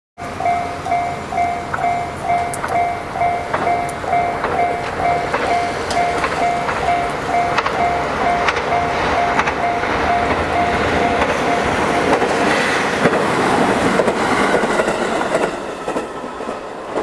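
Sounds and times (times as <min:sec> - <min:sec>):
level crossing warning bell: 0:00.2 - 0:12.7
sharp clicks: 0:01.7 - 0:02.9.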